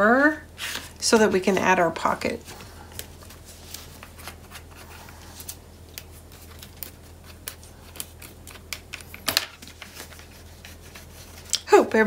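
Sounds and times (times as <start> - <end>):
hands handling paper: 2.4 - 11.6.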